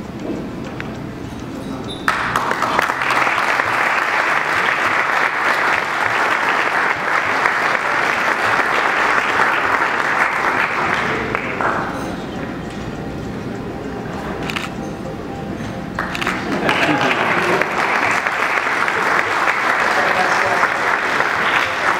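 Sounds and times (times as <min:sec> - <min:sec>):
audience applauding: 0:02.1 - 0:12.2, 0:16.0 - 0:21.9.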